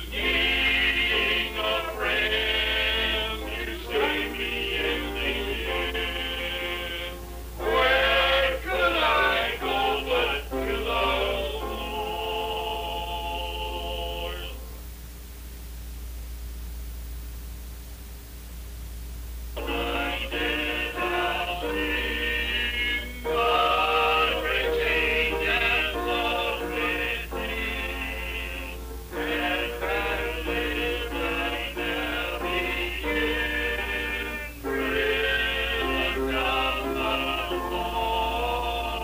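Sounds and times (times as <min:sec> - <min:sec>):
male vocal group singing: 0:00.0 - 0:14.6, 0:19.6 - 0:39.0.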